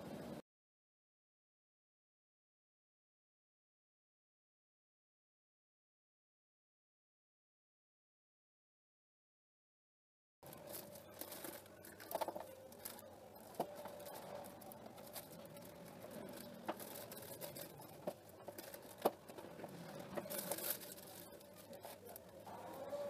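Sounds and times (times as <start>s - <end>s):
faint steady hum: 0.0s - 0.4s, 10.4s - 23.0s
plastic piping bag crinkling: 10.4s - 23.0s.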